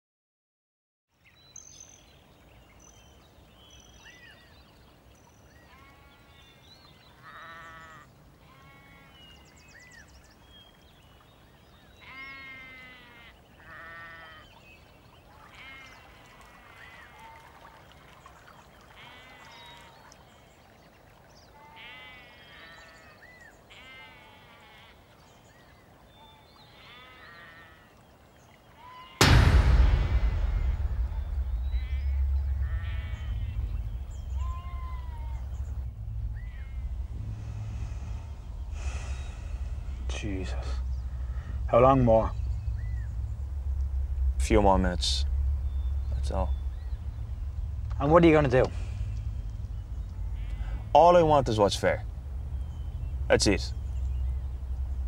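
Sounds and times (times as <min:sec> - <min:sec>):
faint outdoor background noise: 0:01.1 - 0:55.0
distant sheep bleating: 0:05.6 - 0:09.6, 0:11.9 - 0:14.5, 0:15.4 - 0:17.4, 0:18.9 - 0:20.0, 0:21.6 - 0:25.1, 0:26.6 - 0:28.0, 0:30.3 - 0:54.0.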